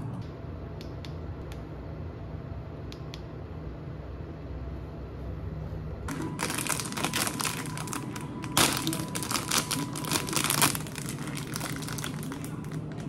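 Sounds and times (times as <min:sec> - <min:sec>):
plastic snack packet crinkling: 0:06.1 - 0:13.0.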